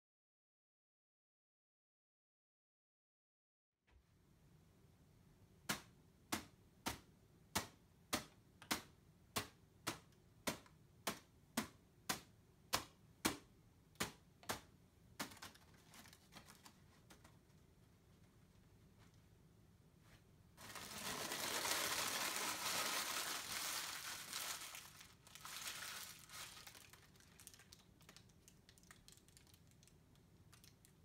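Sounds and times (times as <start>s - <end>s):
paper crinkling: 15.2s - 17.7s, 20.6s - 31.0s.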